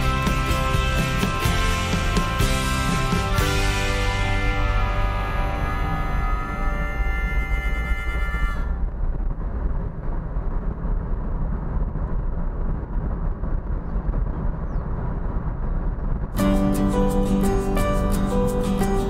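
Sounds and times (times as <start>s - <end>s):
music: 0.0s - 8.6s, 16.4s - 19.0s
vehicle engine and road noise: 0.0s - 19.0s.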